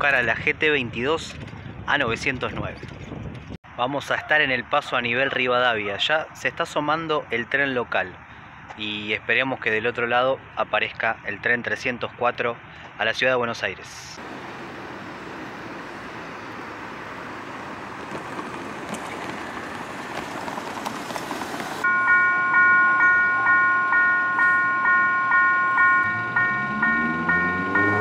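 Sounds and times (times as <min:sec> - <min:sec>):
car passing: 0:14.2 - 0:28.0
low engine rumble: 0:14.2 - 0:28.0
crossing warning bell chiming: 0:21.8 - 0:28.0.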